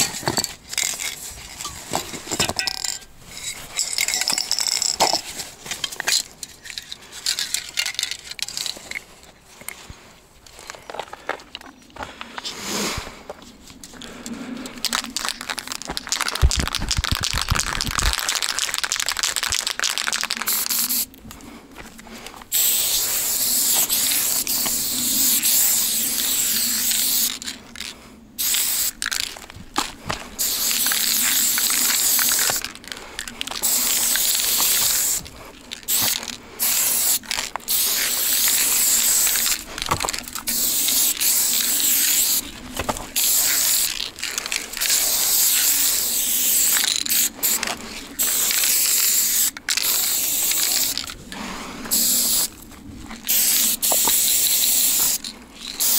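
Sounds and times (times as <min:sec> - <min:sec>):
spray paint can hissing: 0:14.8 - 0:21.2, 0:22.5 - 0:29.4, 0:30.3 - 0:42.5, 0:43.1 - 0:51.2, 0:51.9 - 0:52.6, 0:53.2 - 0:55.9.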